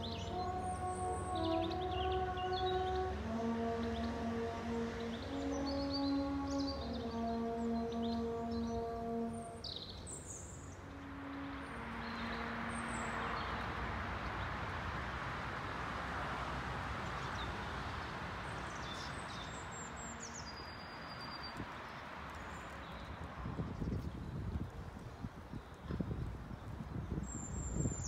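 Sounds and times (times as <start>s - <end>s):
small birds chirping: 17.2s - 24.4s.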